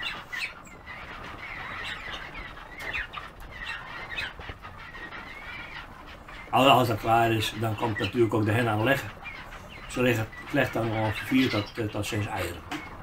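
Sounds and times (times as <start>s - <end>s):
birds chirping and whistling: 0.0s - 13.0s.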